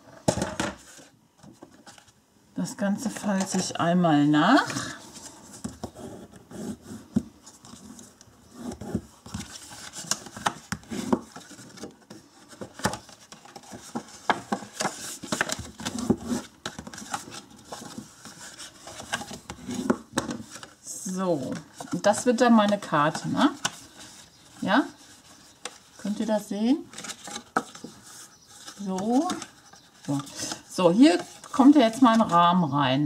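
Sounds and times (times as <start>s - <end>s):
paper taps and crinkles: 8.8s - 20.7s.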